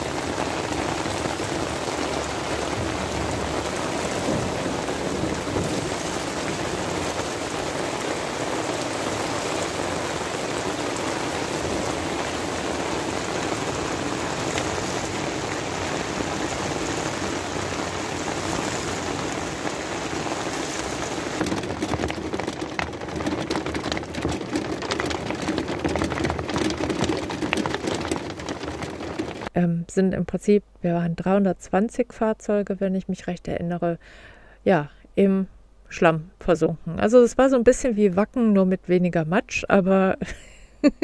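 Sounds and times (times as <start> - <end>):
heavy rain on awning and asphalt: 0.0 - 29.5
raindrops pattering on vehicle roof: 0.0 - 29.5.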